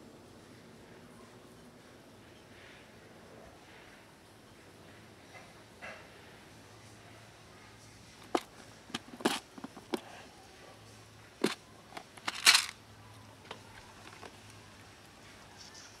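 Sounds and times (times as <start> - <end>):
plastic lid scraping off: 8.2 - 10.2.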